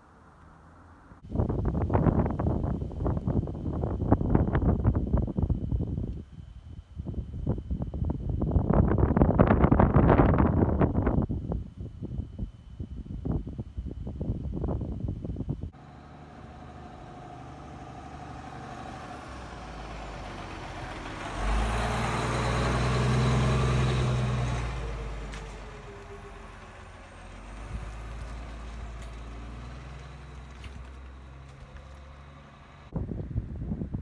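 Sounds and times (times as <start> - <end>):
fire engine driving past: 15.7 - 33.0.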